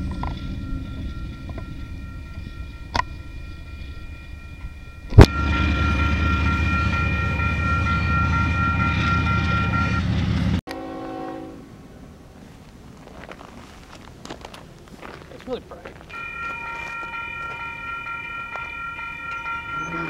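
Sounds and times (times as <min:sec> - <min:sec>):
low rumble of train: 0:00.0 - 0:20.0
locomotive air horn chord: 0:05.2 - 0:08.8, 0:10.7 - 0:11.7.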